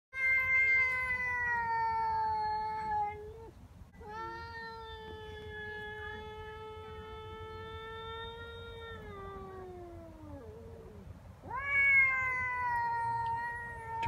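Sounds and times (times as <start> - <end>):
cat yowling: 0.2 - 14.0.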